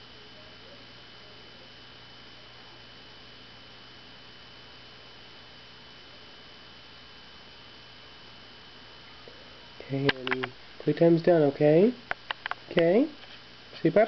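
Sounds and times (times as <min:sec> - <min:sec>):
faint electrical hum: 0:00.0 - 0:14.0
high steady whine: 0:00.0 - 0:14.0
steady hiss: 0:07.4 - 0:14.0.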